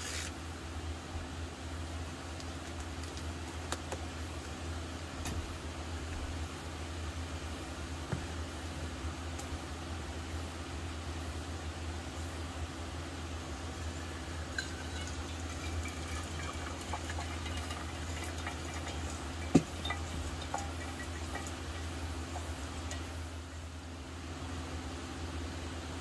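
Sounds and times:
water poured from kettle: 14.4 - 23.5
kettle set down knock: 19.5 - 21.4.

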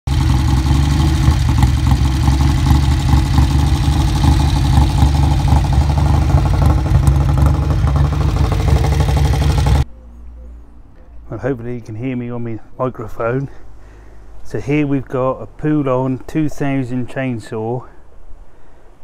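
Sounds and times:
motorcycle engine idling: 0.1 - 9.9.

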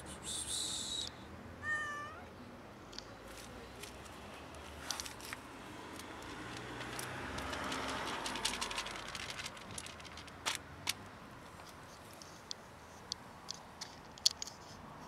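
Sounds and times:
vehicle passing by: 3.7 - 9.5.

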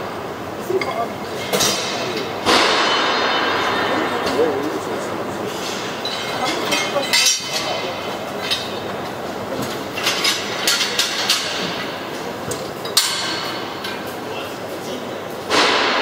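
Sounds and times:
steady workshop din: 0.0 - 16.0
metal clanks and clinks: 5.6 - 8.9.

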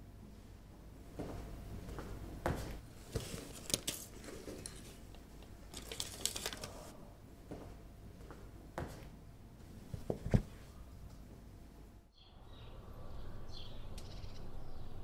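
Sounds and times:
paper envelopes rustling: 3.0 - 6.9.

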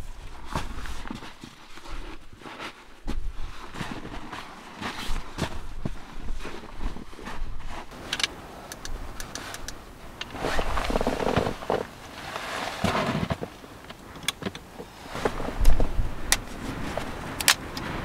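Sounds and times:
clothing and gear rustling: 0.0 - 18.0
low wind rumble: 3.0 - 18.0
small clicks: 8.1 - 10.3.

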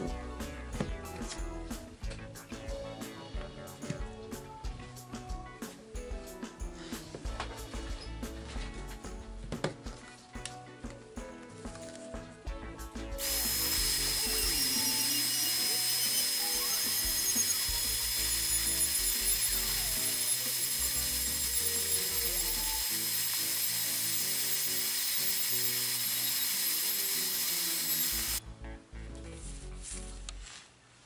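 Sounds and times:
rotary tool sanding resin: 13.2 - 28.4.

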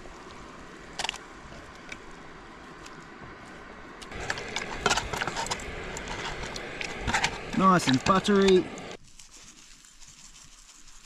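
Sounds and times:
utensils clinking and scraping cookware: 4.1 - 8.3.

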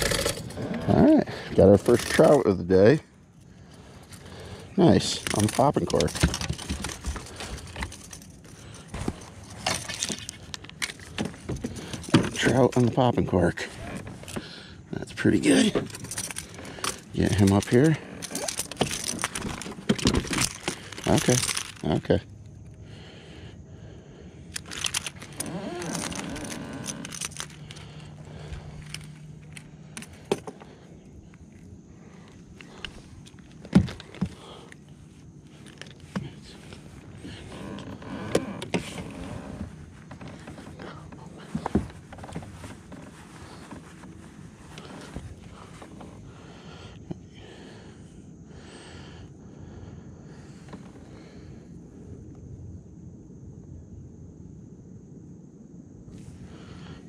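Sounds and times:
fishing tackle clicking and clinking: 4.9 - 11.2, 15.8 - 21.9, 24.5 - 27.9, 28.6 - 30.6
knocks and clicks of fishing gear: 28.8 - 30.7.

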